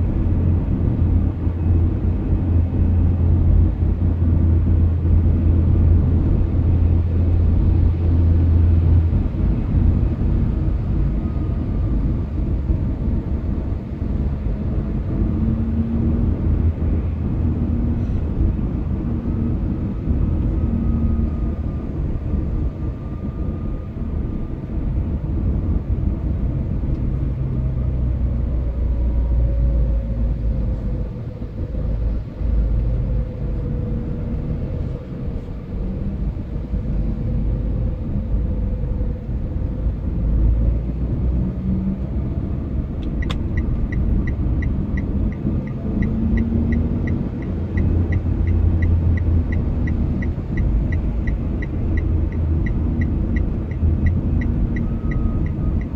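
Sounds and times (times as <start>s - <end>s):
car engine and road noise: 0.0s - 55.9s.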